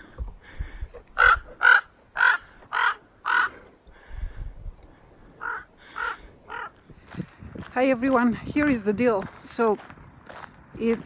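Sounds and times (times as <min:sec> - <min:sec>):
raven cawing: 0:01.2 - 0:04.3, 0:05.0 - 0:07.3.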